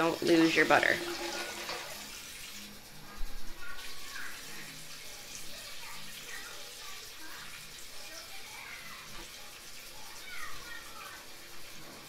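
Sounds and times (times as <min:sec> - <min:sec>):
water splashing in a bowl: 0:00.0 - 0:02.8
kitchen tap running: 0:00.0 - 0:12.0.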